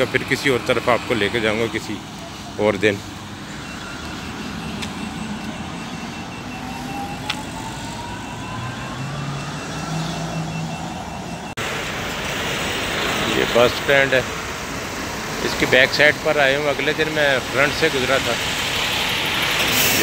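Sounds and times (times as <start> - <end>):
street traffic passing: 0.0 - 20.0
faint high beeping: 1.8 - 11.6.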